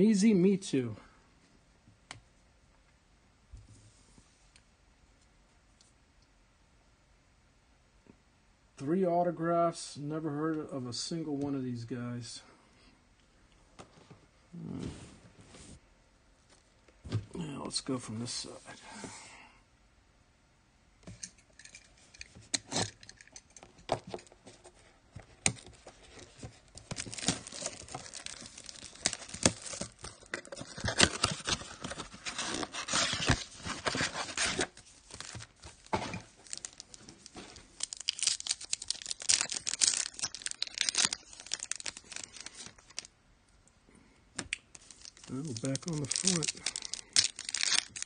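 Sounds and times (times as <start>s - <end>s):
packaging being torn open: 26.7s - 35.6s, 36.4s - 43.1s, 44.5s - 48.0s.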